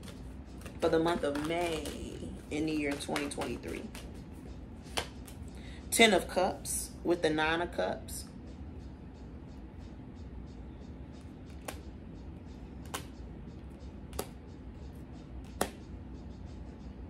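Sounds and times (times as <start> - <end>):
steady low hum: 0.0 - 17.0
sharp card clicks: 12.8 - 13.1, 14.1 - 14.4, 15.5 - 15.8.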